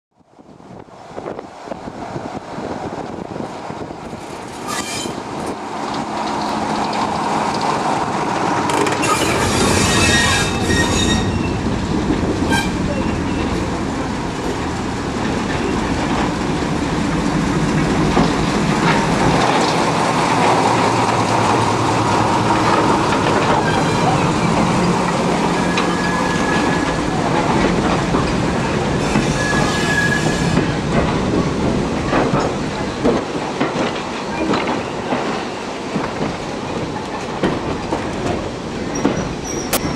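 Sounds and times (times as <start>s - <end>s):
diesel locomotive engine: 0.3s - 39.9s
wheels clacking over rail joints: 2.3s - 39.9s
wheels squealing: 4.2s - 5.6s, 8.7s - 11.8s, 22.6s - 27.6s, 28.5s - 30.8s, 38.9s - 39.9s.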